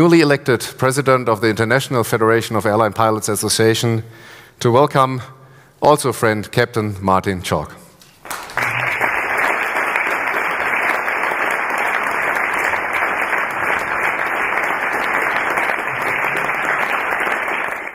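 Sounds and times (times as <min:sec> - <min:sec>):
audience applauding: 0:08.2 - 0:17.9.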